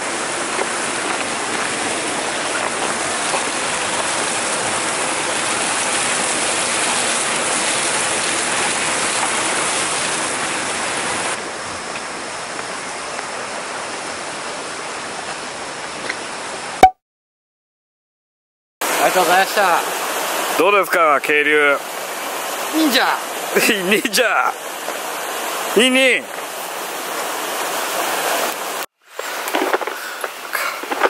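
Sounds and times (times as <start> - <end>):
stream water pouring into pool: 0.0 - 11.4, 18.8 - 31.0.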